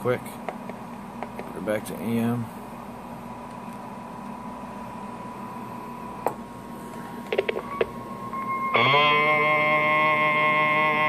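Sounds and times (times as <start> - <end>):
low steady hum: 0.0 - 11.0
loud tone with overtones: 7.3 - 11.0
thin steady test tone: 7.5 - 11.0.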